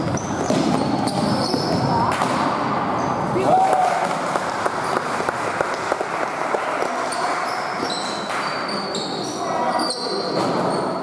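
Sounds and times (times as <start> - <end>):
sneakers squeaking on hardwood: 0.0 - 1.9.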